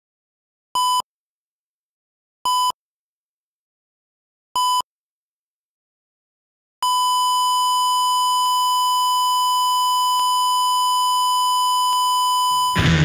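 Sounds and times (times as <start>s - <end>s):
heart monitor flatline beep: 0.8s - 1.1s, 2.5s - 2.8s, 4.6s - 4.9s, 6.8s - 12.8s
rock music with guitar: 12.5s - 13.0s.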